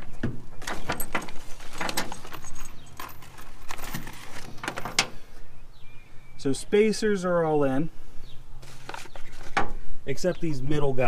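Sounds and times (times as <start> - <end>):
small metal parts clinking: 0.6 - 5.2.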